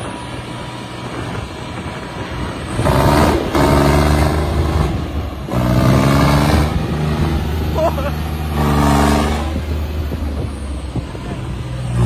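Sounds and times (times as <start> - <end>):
tractor engine revving under load: 2.4 - 12.0.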